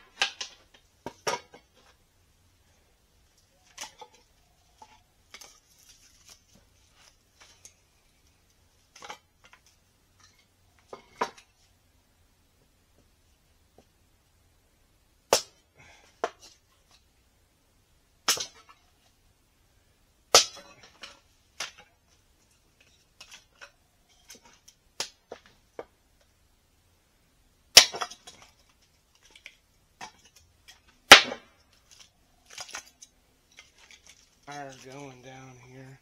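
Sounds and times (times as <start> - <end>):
dry wood cracking: 3.2 - 11.4, 27.8 - 35.7.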